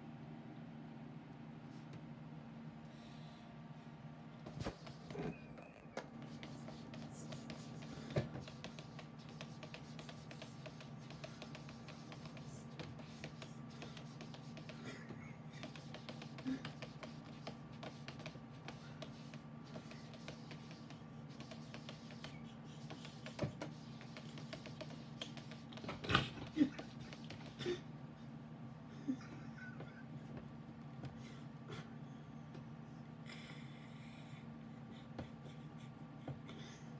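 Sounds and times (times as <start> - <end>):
steady low hum: 0.0 - 36.9
cat paws tapping on screen: 6.0 - 14.9, 15.6 - 27.6.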